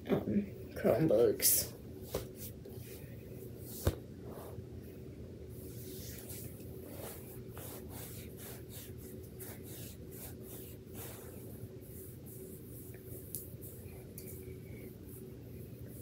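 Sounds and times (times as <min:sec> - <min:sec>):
steady low hum: 0:00.0 - 0:16.0
rustles and scuffs on carpet: 0:03.6 - 0:04.6, 0:05.6 - 0:13.8.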